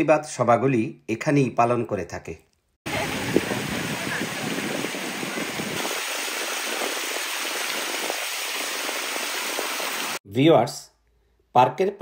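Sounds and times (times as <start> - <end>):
fountain water splashing: 2.9 - 10.2.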